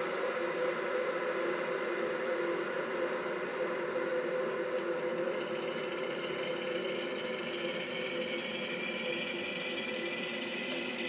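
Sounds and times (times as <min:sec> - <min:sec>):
electric kettle hissing: 0:04.8 - 0:11.0.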